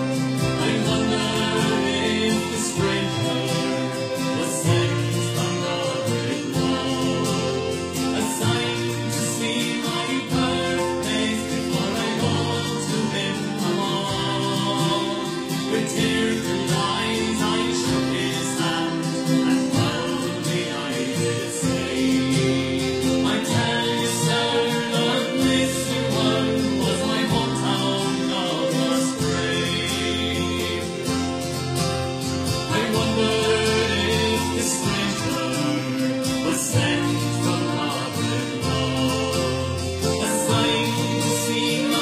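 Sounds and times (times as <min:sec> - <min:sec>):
accordion: 0:00.0 - 0:42.0
fiddle: 0:00.0 - 0:42.0
folk singing: 0:00.0 - 0:42.0
tin whistle: 0:00.0 - 0:42.0.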